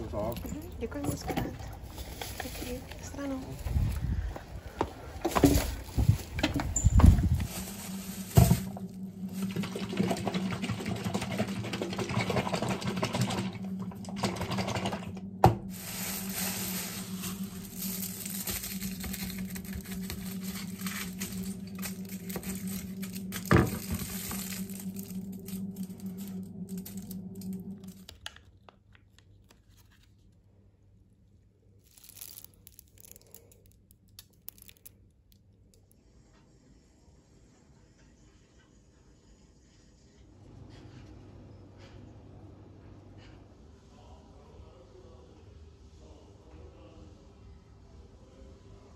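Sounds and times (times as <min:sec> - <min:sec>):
plastic bag and foil crinkling: 0:00.0 - 0:04.3, 0:05.1 - 0:09.9, 0:15.6 - 0:30.4, 0:31.8 - 0:36.0
low hum: 0:00.0 - 0:36.2.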